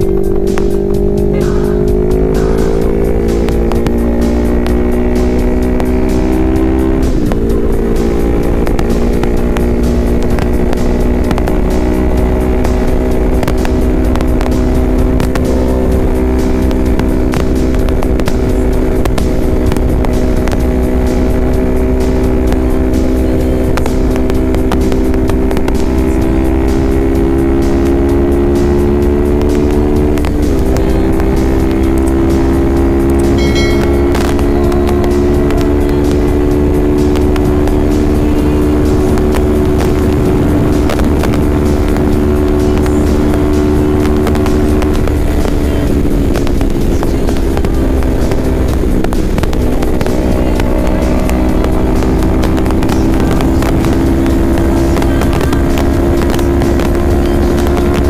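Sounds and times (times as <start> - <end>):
motorcycle engine cruising: 0.0 - 58.0
wind rushing over microphone: 0.0 - 58.0.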